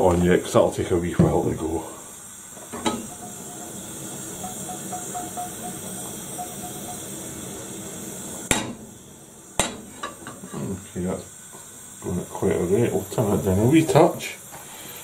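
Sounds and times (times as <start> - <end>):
gas burner hissing: 0.0 - 15.0
pan clanking on metal supports: 2.8 - 3.8.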